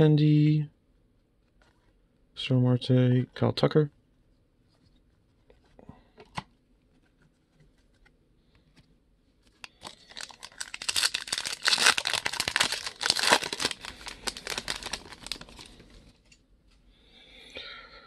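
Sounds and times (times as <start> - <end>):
foil wrapper crinkling: 9.6 - 16.0.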